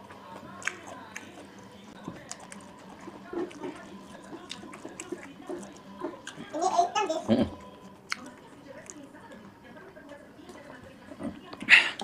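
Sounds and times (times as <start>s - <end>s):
person chewing food: 0.0s - 6.5s, 7.3s - 9.0s
wet mouth clicks and smacks: 8.1s - 8.3s.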